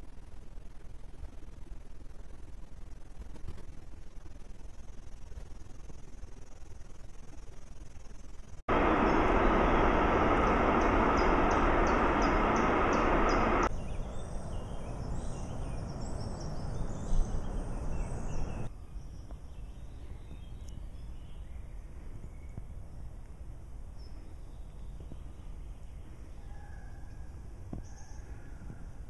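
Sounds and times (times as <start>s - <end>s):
loud steady rushing noise: 8.7s - 18.7s
birds chirping and singing: 8.9s - 18.7s.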